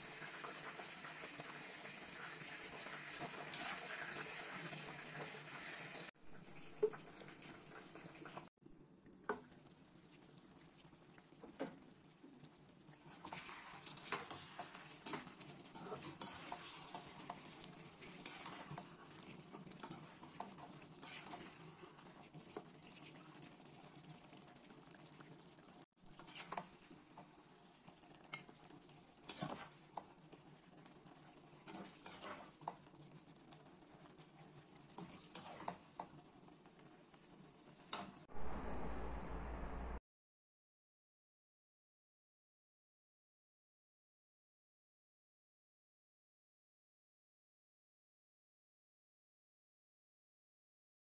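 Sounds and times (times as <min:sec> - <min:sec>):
soft sizzle of simmering sauce: 0:00.0 - 0:39.0
spatula scraping a pan: 0:02.1 - 0:05.9, 0:13.0 - 0:23.9, 0:26.1 - 0:36.3.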